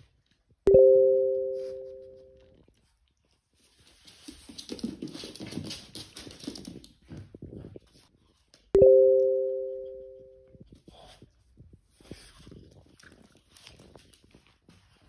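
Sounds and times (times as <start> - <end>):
two-note chime: 0.7 - 2.4, 8.8 - 10.6
dogs scuffling and growling: 10.8 - 15.0.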